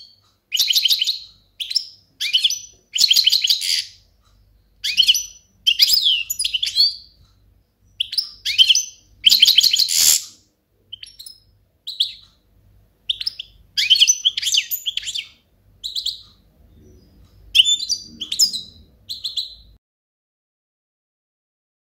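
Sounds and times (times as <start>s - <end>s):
goldfinch twittering song: 4.8s - 7.2s, 7.8s - 10.3s, 13.1s - 19.7s.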